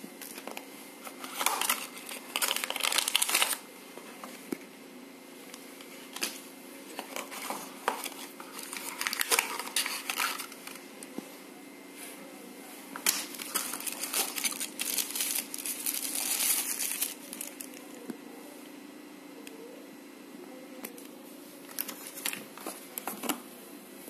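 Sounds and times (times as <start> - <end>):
packaging wrap crinkling: 1.2 - 3.6, 7.0 - 10.8, 13.0 - 17.9.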